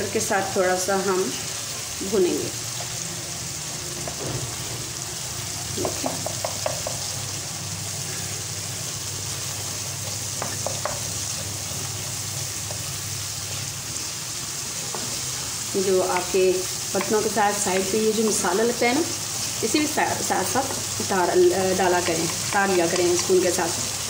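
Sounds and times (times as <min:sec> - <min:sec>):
spices sizzling in a pan: 0:00.0 - 0:24.0
wooden spoon scraping a pan: 0:21.8 - 0:24.0.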